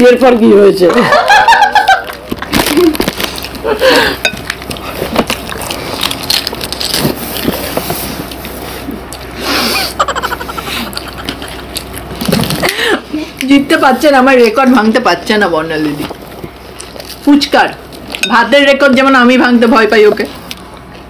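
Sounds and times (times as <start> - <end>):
woman talking: 0.0 - 1.1, 12.9 - 16.1, 17.2 - 20.4
woman laughing: 0.9 - 3.0, 9.6 - 11.7
crisp shells crunching: 2.1 - 3.8, 4.4 - 8.6.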